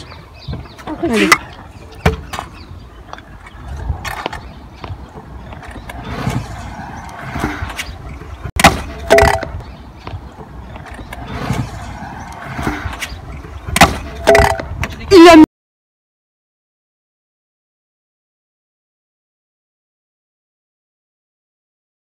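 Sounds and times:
scooter wheels rolling on concrete: 0:00.0 - 0:15.2
metallic clanks of scooter: 0:08.6 - 0:09.7, 0:10.4 - 0:15.0.

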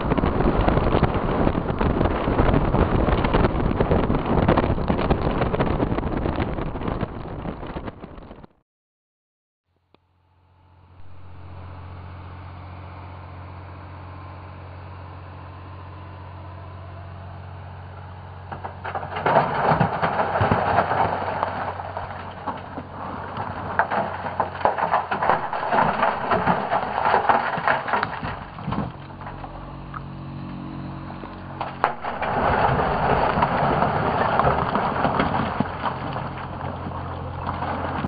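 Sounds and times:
truck engine running: 0:00.0 - 0:06.5, 0:10.5 - 0:38.0
rocks tumbling and crashing: 0:00.0 - 0:08.5, 0:18.5 - 0:30.1, 0:31.0 - 0:38.0.

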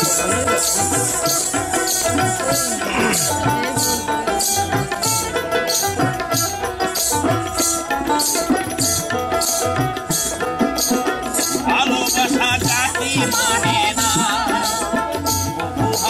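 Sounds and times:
wavering singing voice: 0:00.0 - 0:06.2, 0:11.2 - 0:16.0
hand drum: 0:00.0 - 0:16.0.

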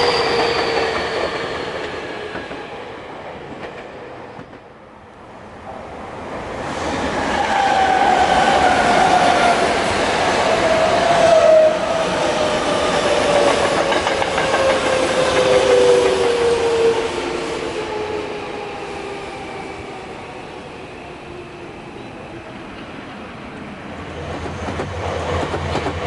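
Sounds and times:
wheels rumbling on rail: 0:07.0 - 0:26.0.

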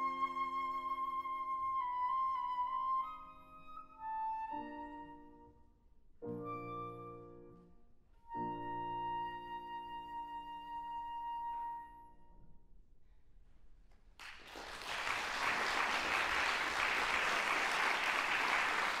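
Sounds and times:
flute and piano chord: 0:08.3 - 0:12.4
audience applause: 0:14.2 - 0:19.0.

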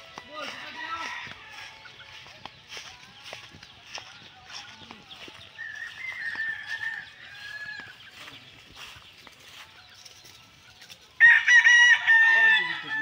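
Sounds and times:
rooster crowing: 0:05.6 - 0:08.0, 0:11.2 - 0:13.0.

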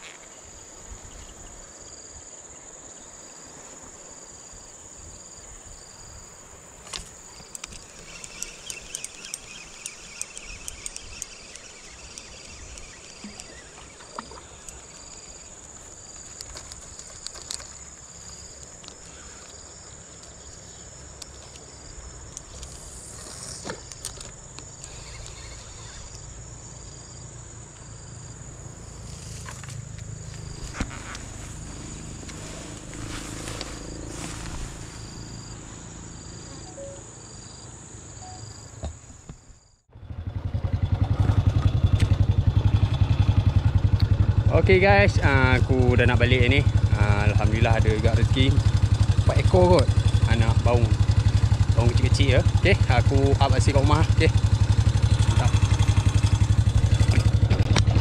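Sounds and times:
insects buzzing and chirping: 0:00.0 - 0:39.9, 0:41.3 - 0:57.9
sharp clicks and ticks: 0:06.9 - 0:15.2.

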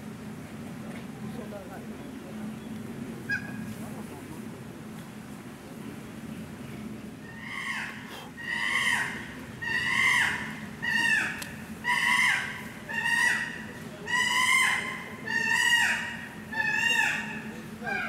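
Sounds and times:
chimpanzee calling: 0:07.3 - 0:18.0.

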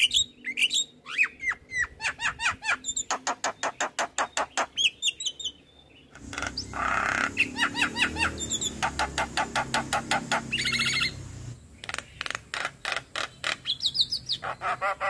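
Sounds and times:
bird chattering calls: 0:02.0 - 0:05.1, 0:06.1 - 0:15.0.

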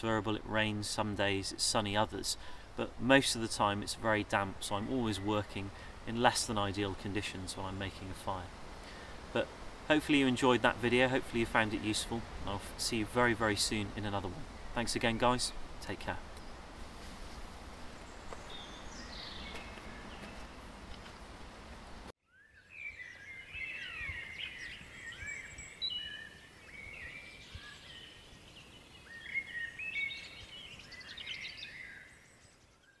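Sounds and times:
outdoor background noise: 0:00.0 - 0:33.0
songbirds chirping and whistling: 0:10.9 - 0:21.2, 0:22.2 - 0:33.0.

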